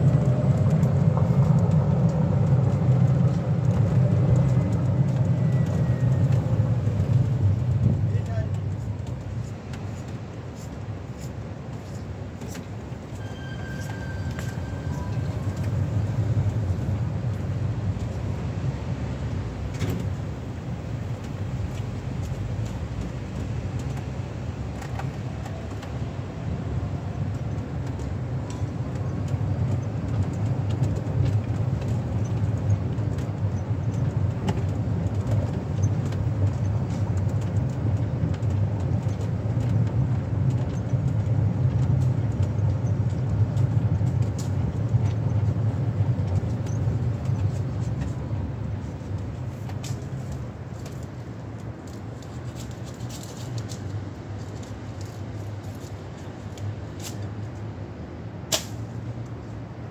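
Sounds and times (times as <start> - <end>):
distant road traffic rumble: 0.0 - 59.9.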